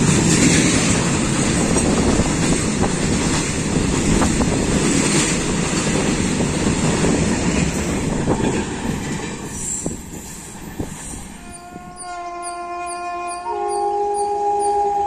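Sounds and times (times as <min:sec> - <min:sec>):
train wheels clattering on rails: 0:00.0 - 0:11.5.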